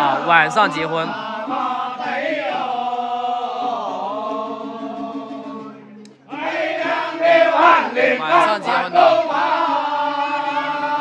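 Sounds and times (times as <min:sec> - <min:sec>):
group of voices chanting: 0:00.0 - 0:04.2, 0:06.3 - 0:11.0.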